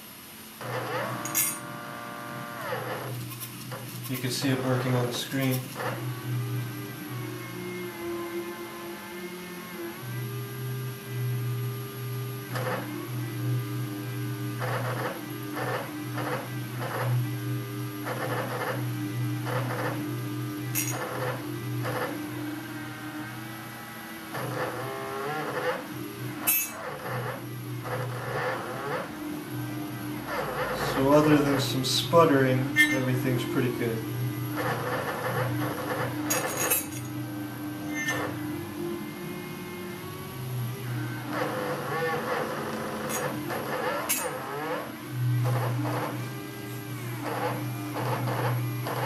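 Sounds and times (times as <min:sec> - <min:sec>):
stepper motors whining: 0:14.5 - 0:38.5.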